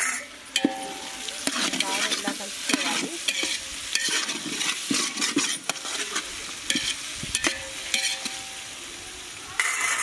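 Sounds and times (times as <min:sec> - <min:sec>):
metal spatula scraping a pot: 0:00.0 - 0:08.5, 0:09.6 - 0:10.0
frying sizzle: 0:00.0 - 0:10.0
metal clinks on a pot: 0:00.5 - 0:02.1, 0:06.7 - 0:08.6.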